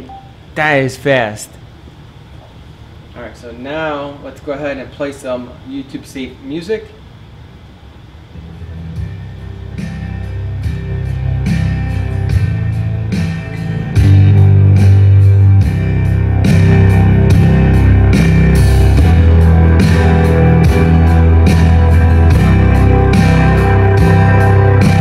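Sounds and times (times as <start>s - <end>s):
rock music through speakers: 8.4s - 25.0s.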